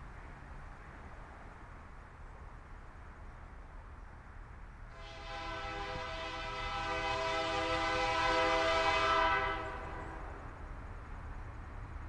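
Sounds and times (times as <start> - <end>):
locomotive air horn blast: 4.9 - 10.3.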